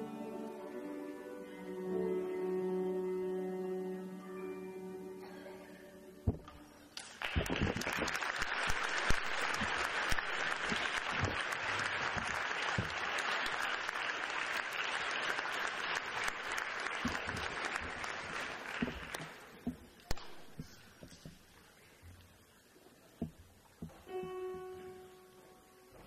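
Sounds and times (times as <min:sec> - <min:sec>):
audience applauding: 0:07.0 - 0:19.6.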